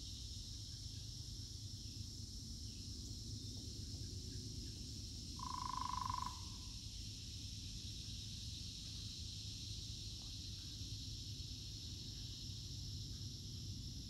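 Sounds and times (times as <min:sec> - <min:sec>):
insects chorus: 0:00.0 - 0:14.0
animal call: 0:05.4 - 0:06.6.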